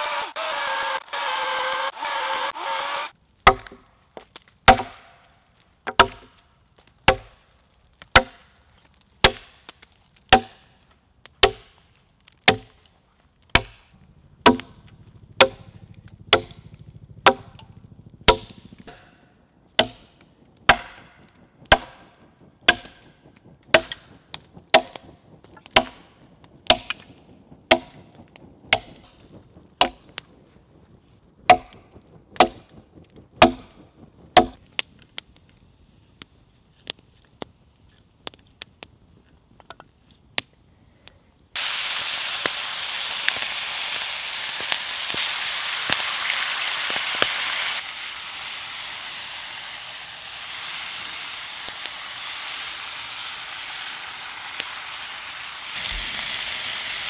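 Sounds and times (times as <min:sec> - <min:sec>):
electric chainsaw cutting log: 0:00.0 - 0:03.2, 0:52.6 - 0:57.0
axe chopping log: 0:00.1 - 0:03.9, 0:04.7 - 0:05.2, 0:05.8 - 0:06.4, 0:07.1 - 0:07.4, 0:08.1 - 0:08.5, 0:09.2 - 0:10.6, 0:11.4 - 0:11.8, 0:12.4 - 0:12.8, 0:13.5 - 0:14.8, 0:15.4 - 0:15.7, 0:16.3 - 0:17.7, 0:18.3 - 0:19.2, 0:19.8 - 0:22.1, 0:22.7 - 0:23.0, 0:23.7 - 0:24.1, 0:24.7 - 0:25.0, 0:25.6 - 0:26.0, 0:26.7 - 0:27.0, 0:27.7 - 0:28.0, 0:29.8 - 0:30.0, 0:31.5 - 0:31.8, 0:32.4 - 0:32.7, 0:33.4 - 0:33.7, 0:34.4 - 0:34.6.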